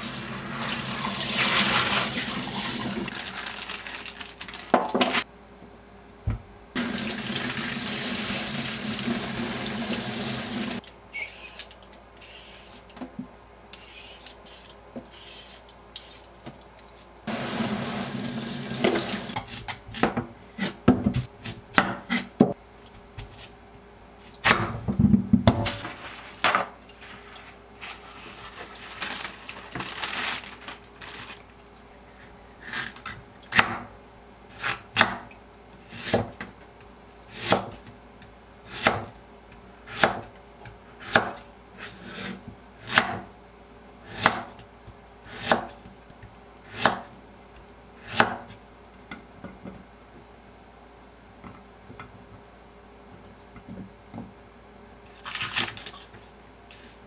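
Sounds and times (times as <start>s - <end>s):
knife slicing radish on board: 34.6s - 35.3s, 35.9s - 36.4s, 37.3s - 37.8s, 38.7s - 39.1s, 39.9s - 40.3s, 41.0s - 43.3s, 44.0s - 44.6s, 45.3s - 45.8s, 46.7s - 47.1s, 48.0s - 48.6s.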